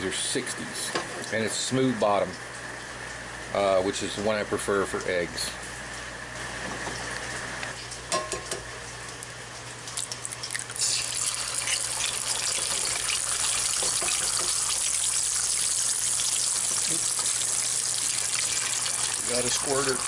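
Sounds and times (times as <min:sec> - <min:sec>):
egg sizzling in hot oil: 0:10.0 - 0:20.0.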